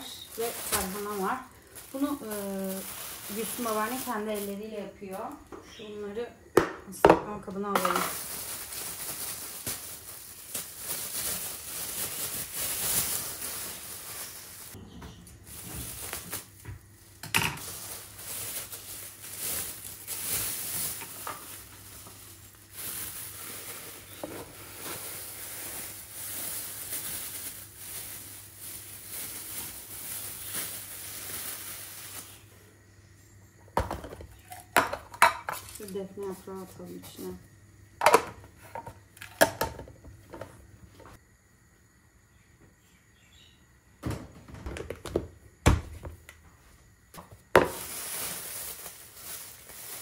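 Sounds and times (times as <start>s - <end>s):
plastic bag crinkling: 0.0s - 5.1s, 7.7s - 14.8s, 15.4s - 32.4s, 47.5s - 50.0s.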